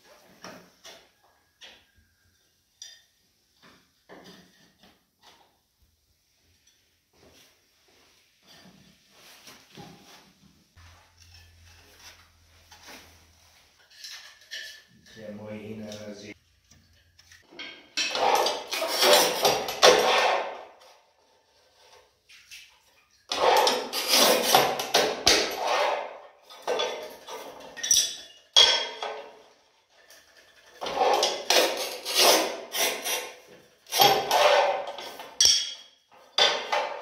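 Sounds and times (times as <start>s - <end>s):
tile cutter wheel scraping: 16.8s - 22.1s, 23.3s - 28.2s, 30.0s - 35.4s.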